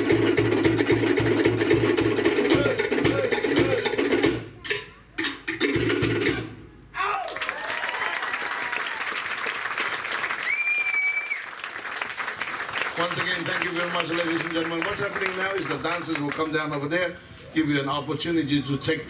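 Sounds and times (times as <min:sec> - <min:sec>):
drum ensemble playing fast beat: 0:00.0 - 0:06.7
audience applauding and cheering: 0:07.0 - 0:16.5
whistle from audience: 0:10.4 - 0:11.5.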